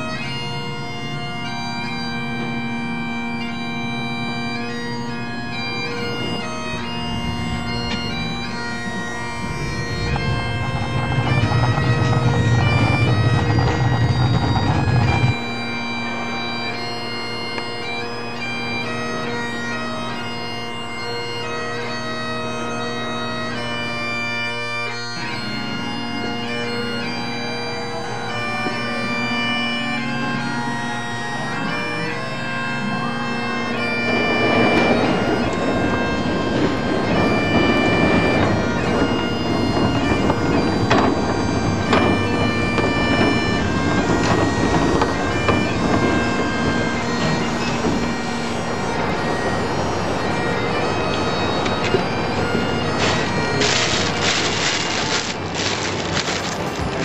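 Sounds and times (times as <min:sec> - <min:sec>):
bagpipe music: 0:00.0 - 0:57.0
loud low rumbling: 0:04.9 - 0:16.0, 0:34.0 - 0:57.0.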